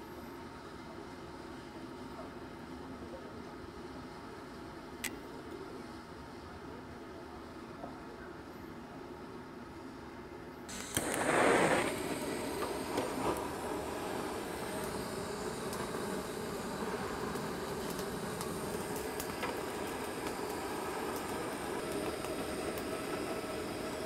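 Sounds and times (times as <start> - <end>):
butane torch flame rushing: 10.7 - 24.0.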